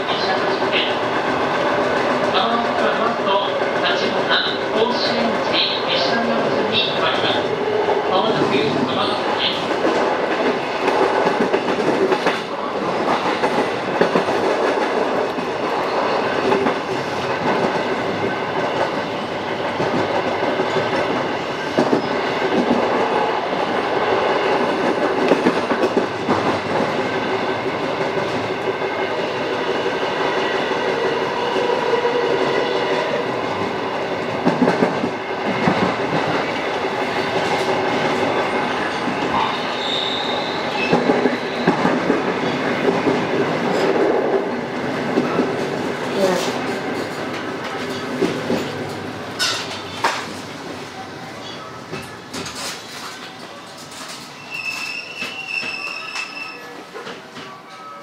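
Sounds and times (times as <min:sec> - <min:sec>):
steady train hum: 0:00.0 - 0:54.8
train wheels clacking over rail joints: 0:40.2 - 0:50.4.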